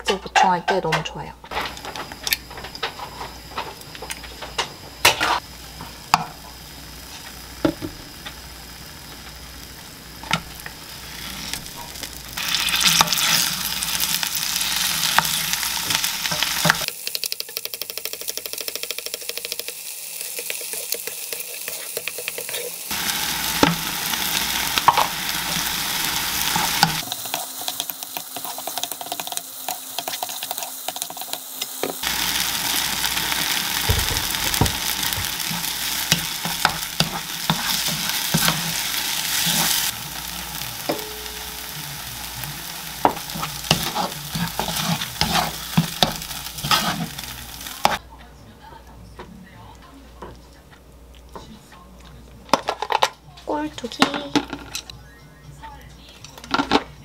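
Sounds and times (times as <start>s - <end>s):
egg and tofu sizzling in a pan: 1.5s - 48.0s
wooden spoon scraping a pan: 20.2s - 22.8s, 33.8s - 39.9s, 43.1s - 48.0s.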